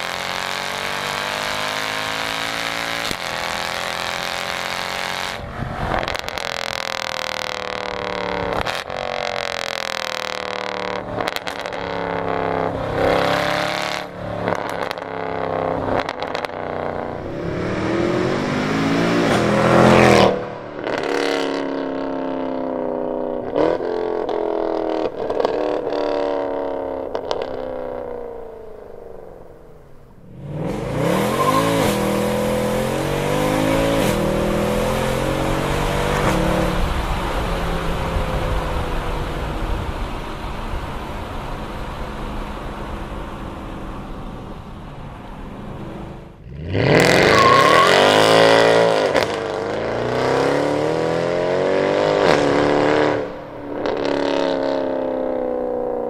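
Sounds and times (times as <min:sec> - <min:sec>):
car engine revving hard: 0:00.0 - 0:27.4, 0:30.3 - 0:39.9, 0:45.9 - 0:55.6
exhaust cracks: 0:05.4 - 0:12.5, 0:13.9 - 0:17.3, 0:19.2 - 0:28.4.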